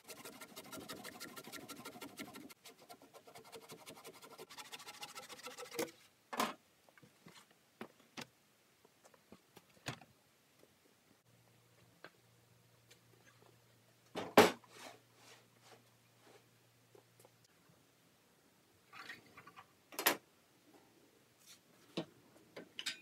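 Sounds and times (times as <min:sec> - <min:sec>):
handsaw cutting wood: 0:00.0 - 0:05.9.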